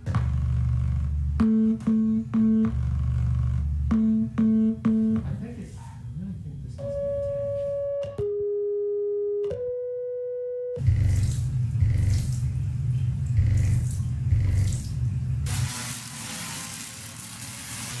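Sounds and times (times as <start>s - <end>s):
deep bass tone pulsing: 0.0s - 5.4s, 6.8s - 15.5s
electric sparks hissing: 15.5s - 18.0s.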